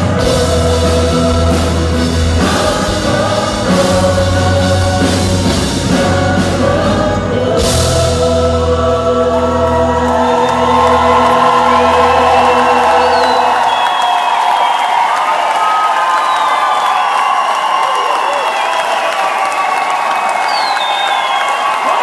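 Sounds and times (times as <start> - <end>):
rock band playing: 0.0 - 13.8
choir singing: 0.0 - 14.0
audience cheering: 9.4 - 22.0.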